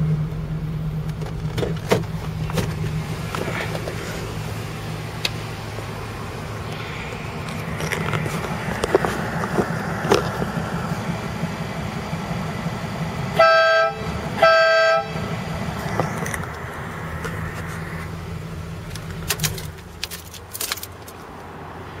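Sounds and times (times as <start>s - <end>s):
car engine running: 0.0s - 22.0s
electric air horn blasts: 13.3s - 15.4s.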